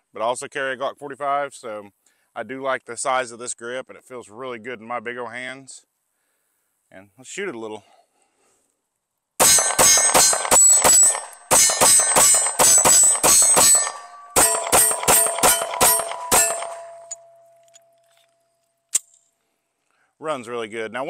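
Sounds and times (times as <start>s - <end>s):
pistol shots: 9.4s - 17.3s
metallic ringing: 9.4s - 18.6s.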